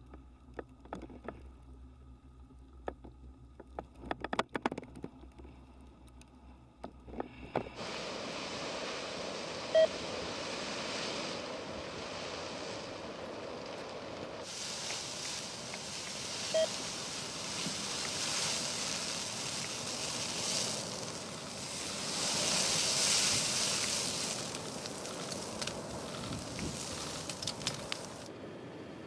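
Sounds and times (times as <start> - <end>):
fire crackles and pops: 7.7 - 28.3
flames and wind rushing: 7.7 - 29.0
short beep: 9.7 - 9.9, 16.5 - 16.8.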